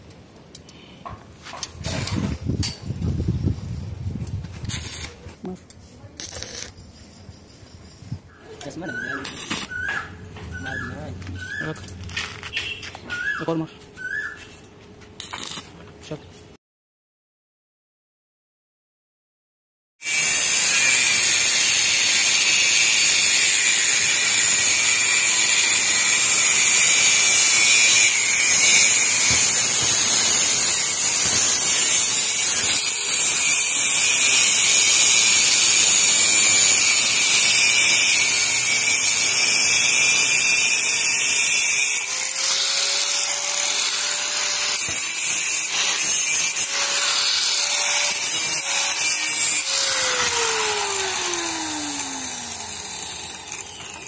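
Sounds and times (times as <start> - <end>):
angle grinder cutting steel: 4.6 - 5.2, 6.2 - 6.8, 8.6 - 12.0, 20.0 - 54.0
grinder motor whine: 48.8 - 54.0.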